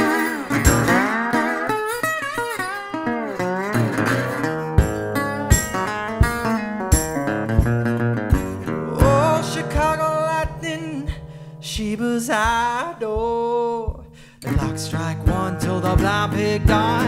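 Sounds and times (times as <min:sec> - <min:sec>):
person singing: 0:00.0 - 0:01.5, 0:08.5 - 0:17.0
resonator guitar picking: 0:00.0 - 0:17.0.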